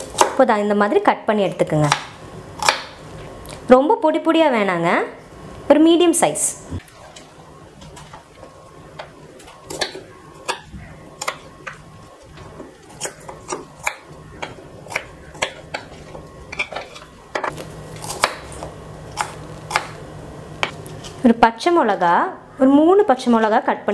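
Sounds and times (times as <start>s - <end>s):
knife chopping on wooden board: 1.8s - 3.0s, 13.0s - 15.9s, 16.5s - 20.0s.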